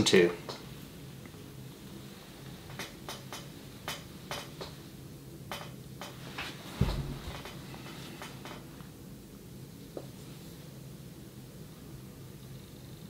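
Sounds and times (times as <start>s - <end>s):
steady low hum: 0.0s - 13.0s
low bump: 6.8s - 7.7s.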